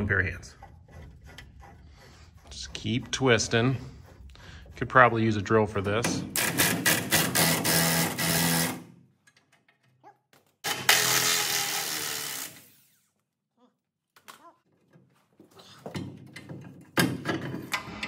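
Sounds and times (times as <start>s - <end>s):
impact wrench running: 6.1s - 8.9s, 10.6s - 12.9s.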